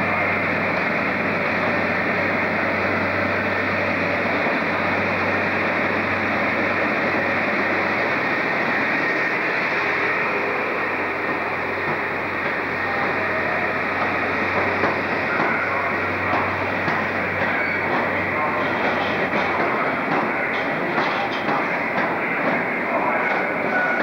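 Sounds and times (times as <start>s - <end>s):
diesel train engine passing: 0.0s - 24.0s
train coaches rolling by: 0.0s - 24.0s.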